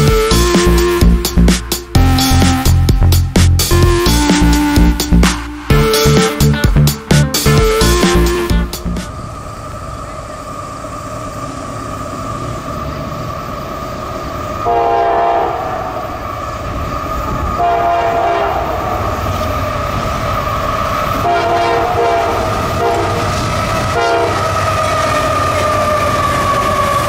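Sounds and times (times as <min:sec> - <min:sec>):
diesel locomotive approaching: 0:00.0 - 0:27.0
train air horn blasts: 0:14.6 - 0:16.1, 0:17.6 - 0:19.2, 0:21.2 - 0:24.7.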